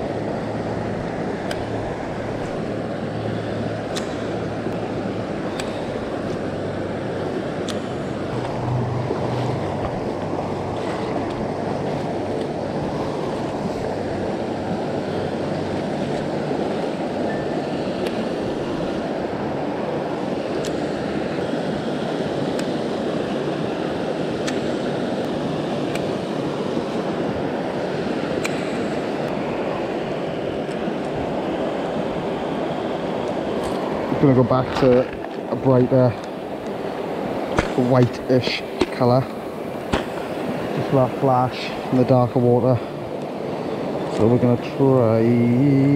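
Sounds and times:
river water rushing over rocks: 0.0s - 45.9s.

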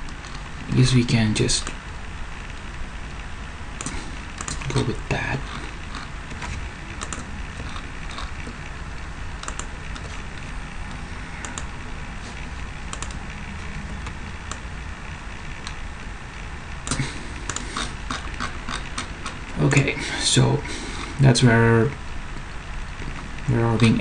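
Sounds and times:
steady low hum: 0.0s - 24.0s
mouse and keyboard clicks: 5.5s - 8.3s, 9.4s - 10.2s, 16.9s - 19.4s.

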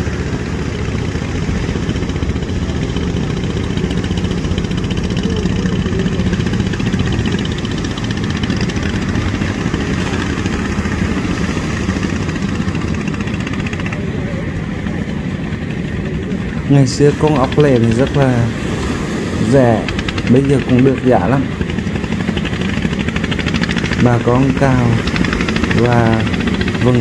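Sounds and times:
small engine running: 0.0s - 27.0s.

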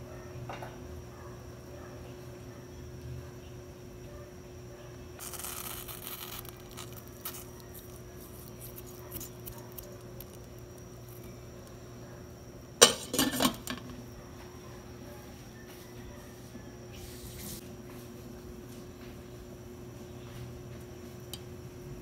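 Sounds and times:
soup boiling in a pot: 5.2s - 7.5s
glass lid clattering on pot: 12.8s - 13.8s.

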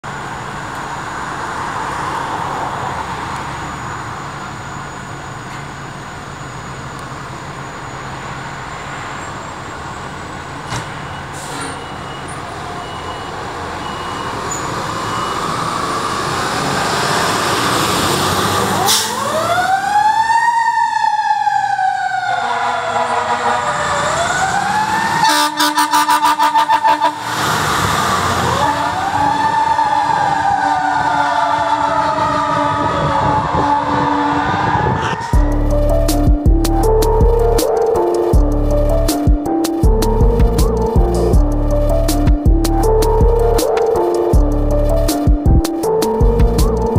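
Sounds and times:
diesel engines running: 0.0s - 20.4s, 22.6s - 46.9s
wailing siren: 12.4s - 46.9s
air horn blasts: 22.3s - 23.9s, 25.2s - 27.3s.

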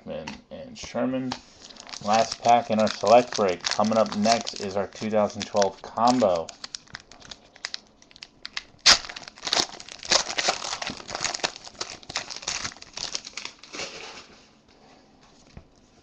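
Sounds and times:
foil crinkling: 1.4s - 14.3s
foil wrapper tearing: 1.5s - 14.3s.

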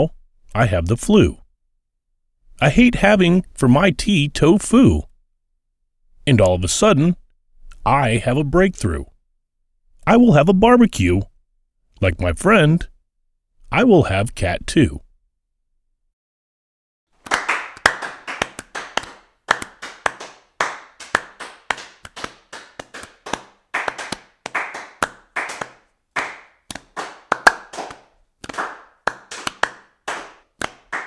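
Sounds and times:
hand clapping: 17.2s - 31.0s.

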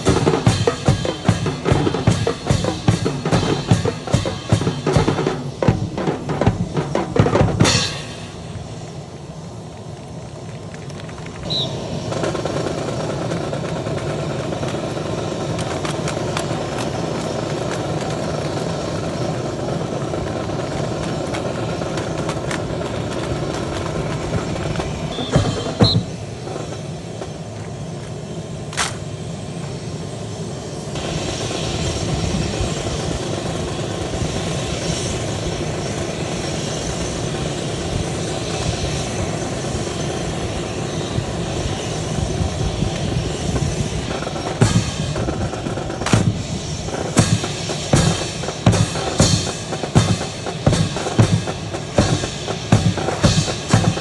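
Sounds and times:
drum beat: 0.0s - 8.1s, 24.3s - 26.2s, 44.4s - 54.0s
aircraft engine droning: 0.0s - 54.0s.

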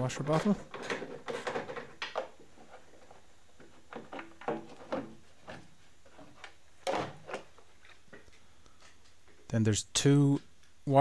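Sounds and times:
plastic scraping clatter: 0.3s - 7.6s
plastic knocks and scrapes: 0.3s - 8.3s.

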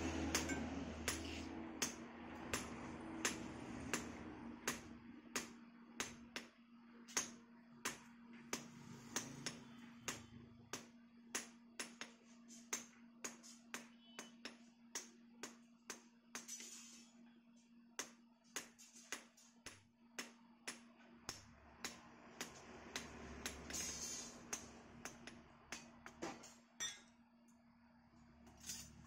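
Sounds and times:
hammer striking steel on anvil: 0.0s - 6.5s.

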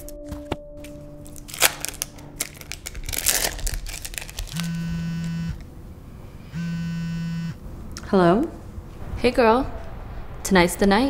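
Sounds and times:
paper or plastic crinkling: 0.8s - 4.8s
phone ringback tone: 4.5s - 5.6s, 6.4s - 7.6s.

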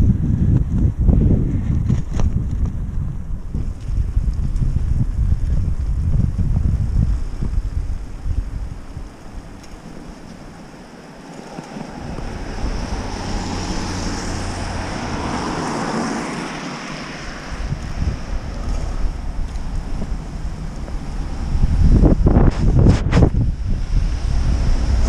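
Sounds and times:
wind buffeting microphone: 0.0s - 25.0s
tyres hissing on wet street: 7.9s - 25.0s.

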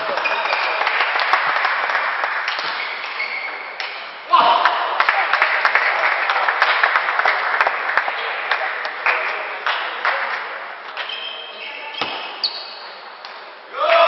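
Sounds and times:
audience applauding: 0.0s - 3.2s, 5.0s - 10.4s.

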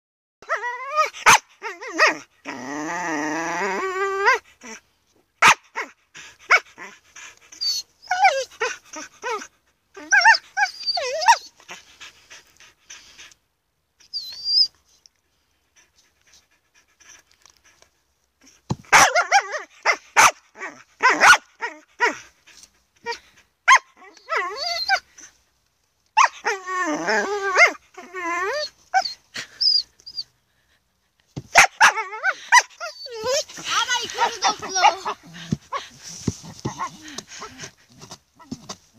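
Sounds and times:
dog barking and howling: 0.4s - 2.3s, 5.4s - 6.9s, 7.7s - 11.5s, 18.9s - 22.2s, 26.2s - 29.2s, 31.5s - 35.9s.

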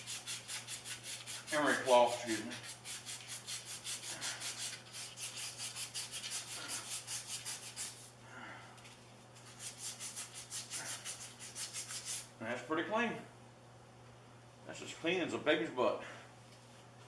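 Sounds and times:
emery cloth rasping on metal shaft: 0.0s - 8.1s.

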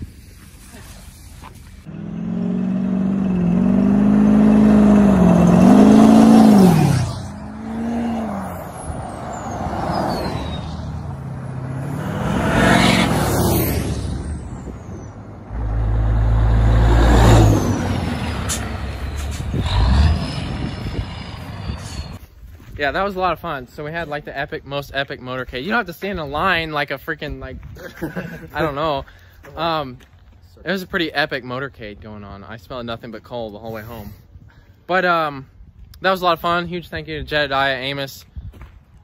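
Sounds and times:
diesel truck engines revving: 1.8s - 22.2s
loud low rumble: 14.0s - 22.2s.

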